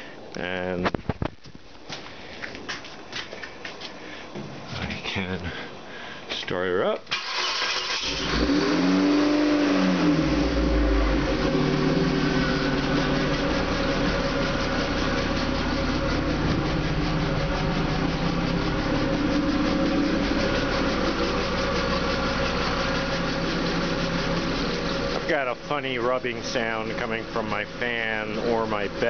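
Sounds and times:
car engine starting and idling: 0:07.0 - 0:29.0.

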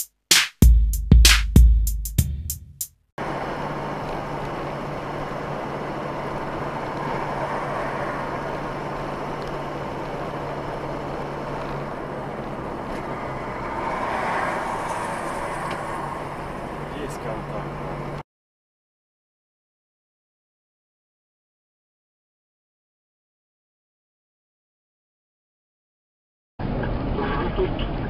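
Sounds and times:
car engine hum: 0:03.2 - 0:18.2
car road noise: 0:03.2 - 0:18.2, 0:26.6 - 0:28.0.

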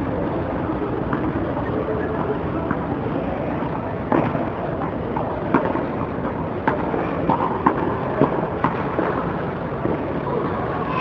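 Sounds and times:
tennis racket hitting ball: 0:05.2 - 0:09.2.

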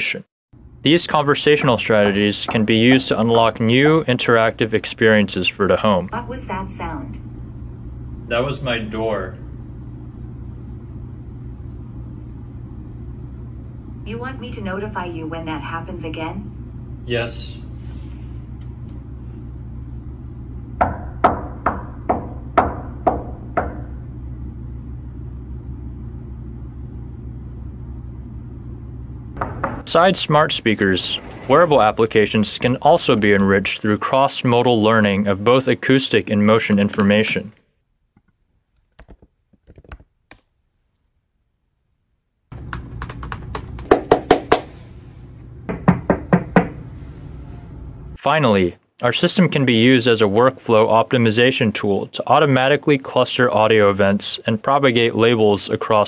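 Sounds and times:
low room hum: 0:00.0 - 0:56.0
knocks on wooden door: 0:29.4 - 0:29.9, 0:45.7 - 0:46.8
laptop keyboard typing: 0:42.6 - 0:44.6
hand claps: 0:42.6 - 0:44.8.

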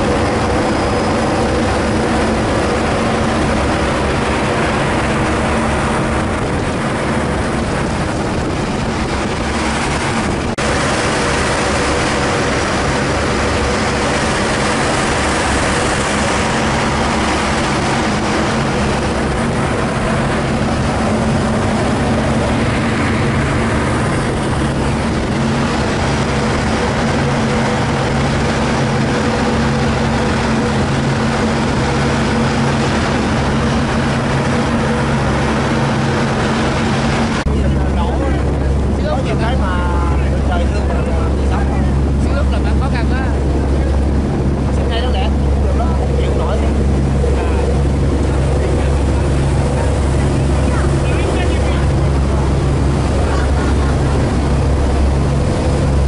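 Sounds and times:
ferry engines droning: 0:00.0 - 0:56.0
rush of wind and water: 0:00.0 - 0:56.0.

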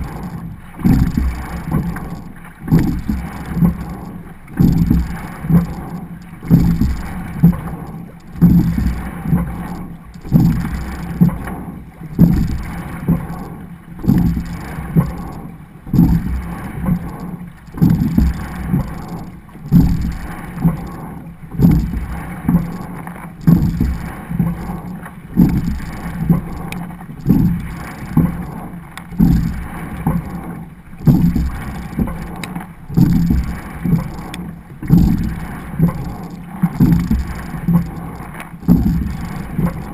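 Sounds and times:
water rushing along hull: 0:00.0 - 0:39.9.

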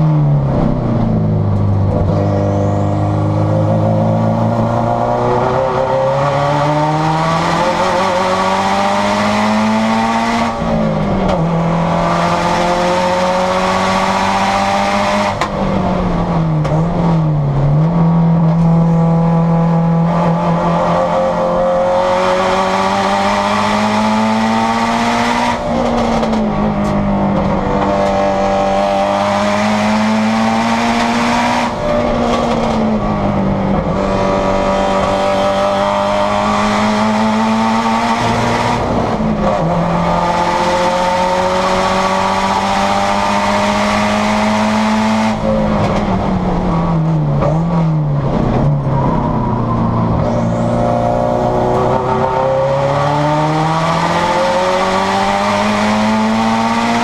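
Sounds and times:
race car engine accelerating: 0:00.0 - 0:57.0.

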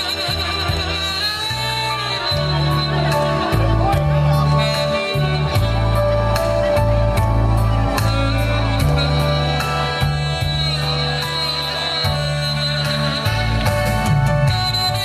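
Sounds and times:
bass line: 0:00.0 - 0:15.0
saxophone melody: 0:00.0 - 0:15.0.

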